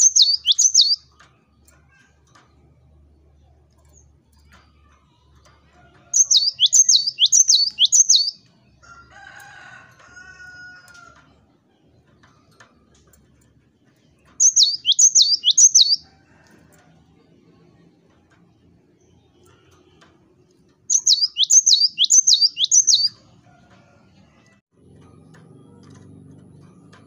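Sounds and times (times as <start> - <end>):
bird singing sharp repeated phrase: 0.0 - 1.0, 6.2 - 8.3, 14.4 - 16.0, 20.9 - 23.2
fainter lower bird call: 0.0 - 1.1, 6.2 - 8.3, 14.4 - 16.1, 20.9 - 23.2.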